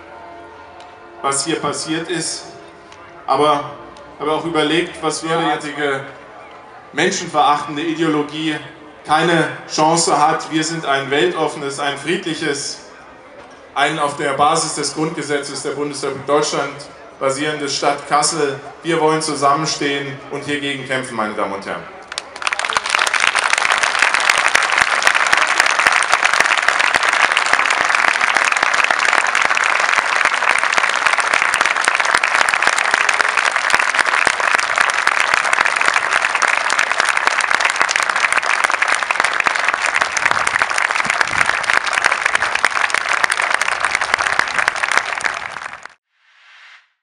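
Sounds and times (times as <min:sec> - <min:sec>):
audience applauding: 0:22.1 - 0:46.0.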